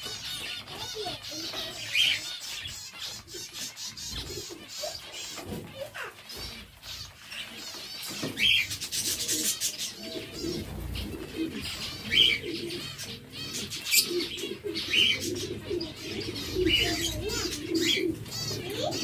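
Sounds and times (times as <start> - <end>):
finches chattering: 0.0 - 19.0
sharp finch calls: 0.0 - 19.0.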